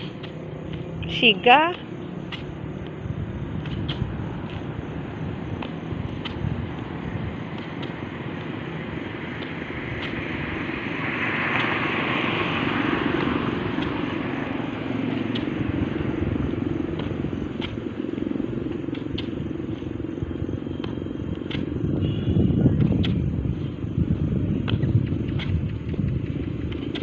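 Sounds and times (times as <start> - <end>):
steady outdoor rumble: 0.0 - 27.0.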